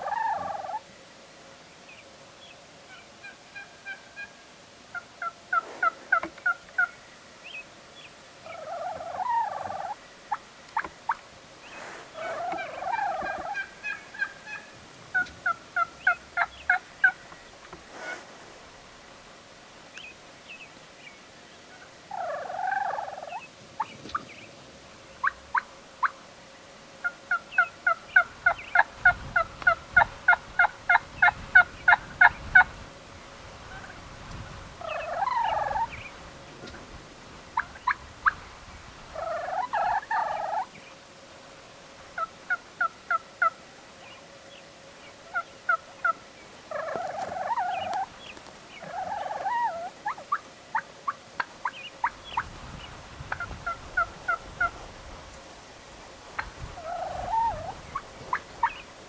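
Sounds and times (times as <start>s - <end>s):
turkey gobbling: 0.0s - 0.8s, 1.9s - 17.4s, 21.7s - 24.5s, 25.2s - 26.2s, 27.0s - 32.7s, 33.7s - 34.0s, 34.8s - 36.9s, 37.6s - 38.4s, 39.1s - 40.9s, 42.2s - 52.5s, 53.3s - 54.8s, 56.4s - 58.9s
turkey yelps: 0.0s - 0.8s, 2.9s - 7.6s, 8.4s - 10.0s, 10.8s - 17.2s, 22.1s - 24.3s, 25.2s - 26.1s, 27.0s - 32.7s, 34.8s - 36.8s, 37.6s - 38.4s, 39.2s - 40.7s, 42.2s - 43.6s, 45.3s - 48.1s, 48.7s - 50.8s, 56.8s - 58.8s.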